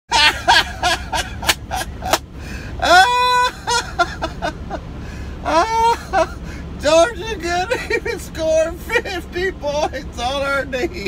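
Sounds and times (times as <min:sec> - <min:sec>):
man laughing hard: 0:00.1 - 0:06.5, 0:07.6 - 0:08.2.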